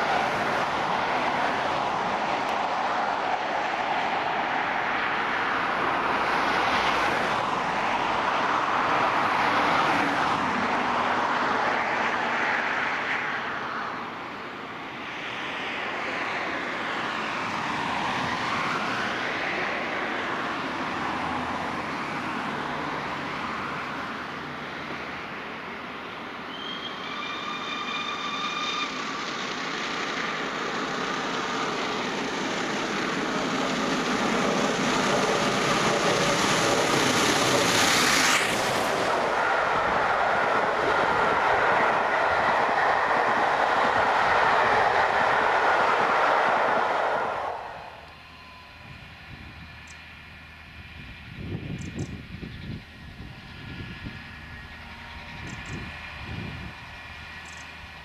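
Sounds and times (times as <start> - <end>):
steam locomotive working hard: 0.0 - 15.1, 15.8 - 58.0
train whistle: 26.5 - 29.2.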